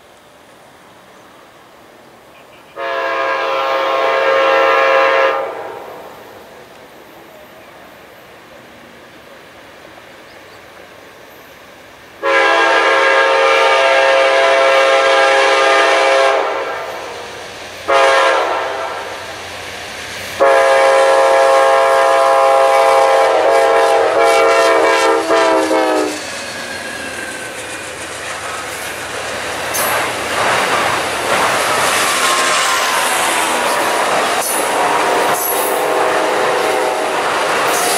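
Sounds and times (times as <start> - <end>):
train horn blasts: 2.7 - 6.1, 12.2 - 19.3, 20.4 - 26.2, 34.4 - 37.9
train wheels clattering over rail joints: 26.2 - 35.8, 37.2 - 37.9.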